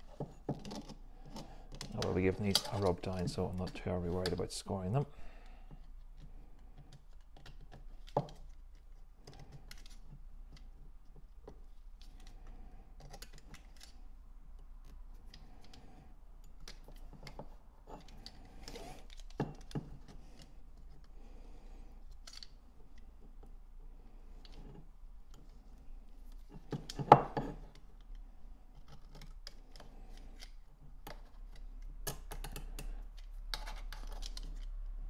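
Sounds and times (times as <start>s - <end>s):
faint scratches and small clicks: 5.8s - 21.2s, 27.6s - 34.9s.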